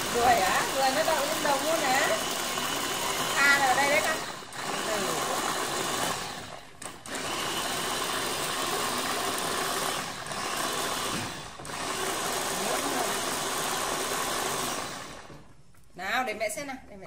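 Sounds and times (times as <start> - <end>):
electric blender running: 0.0 - 15.5.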